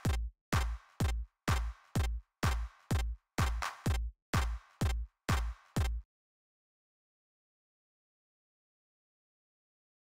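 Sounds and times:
synthesizer percussive thuds: 0.0s - 6.0s.

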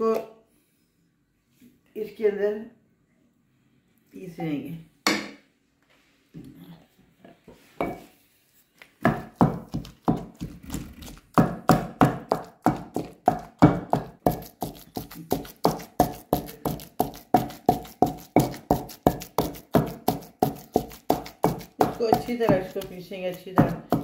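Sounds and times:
pestle pounding in stone mortar: 9.0s - 24.0s.

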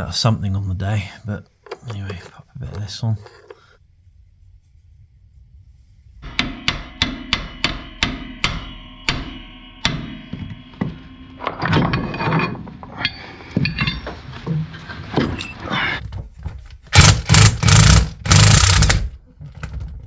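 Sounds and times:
metallic clatter and scraping: 1.6s - 3.6s, 8.2s - 16.7s
hammer striking steel bar: 6.2s - 14.0s.

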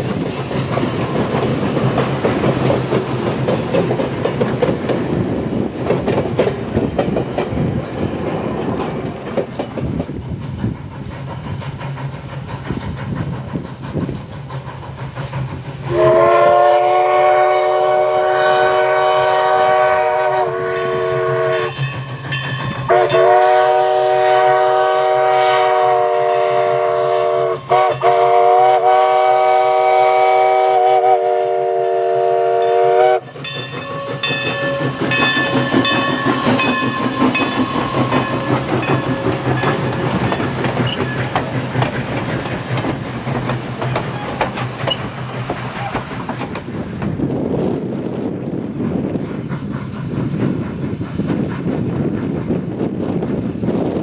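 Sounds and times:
train wheels clattering: 0.0s - 54.0s
steam locomotive chime whistle: 15.9s - 41.4s.

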